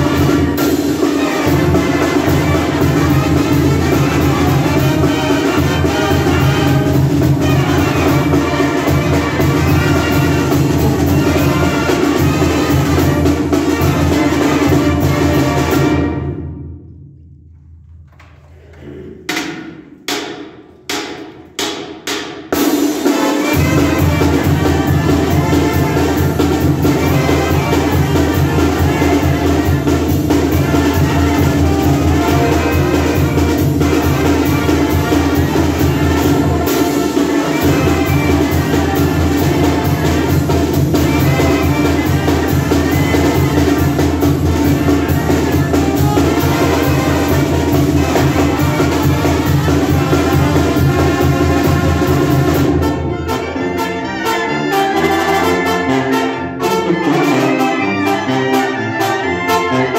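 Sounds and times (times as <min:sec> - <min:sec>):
brass band playing: 0:00.0 - 0:16.8, 0:19.5 - 0:59.9
drum and cymbal strikes: 0:19.3 - 0:52.8.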